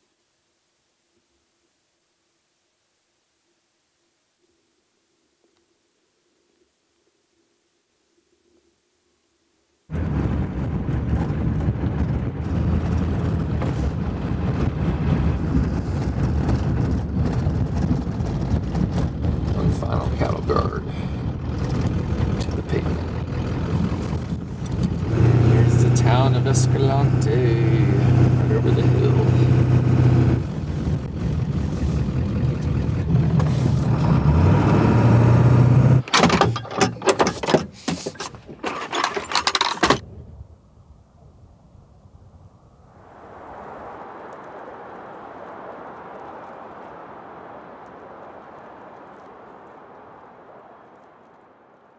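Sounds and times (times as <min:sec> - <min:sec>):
diesel truck engine rumble: 0:09.9 - 0:39.3.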